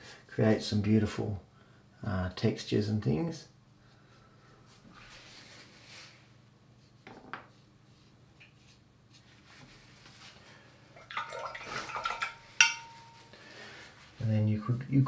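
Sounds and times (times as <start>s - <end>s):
paintbrush clinking on ceramic dish: 11.1s - 13.4s.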